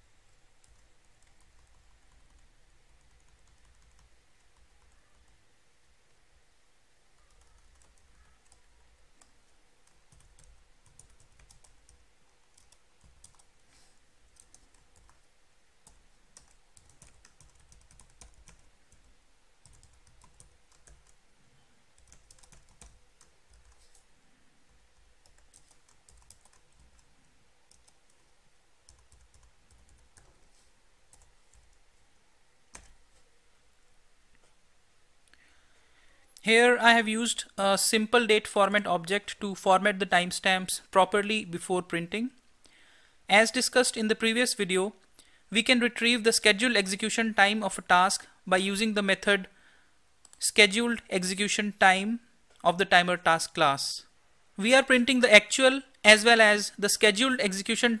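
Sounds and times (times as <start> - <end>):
low steady hum: 0.0 - 57.2
faint typing on keyboard: 0.2 - 5.4, 7.1 - 21.2, 21.9 - 32.0, 32.7 - 33.3, 50.2 - 50.9.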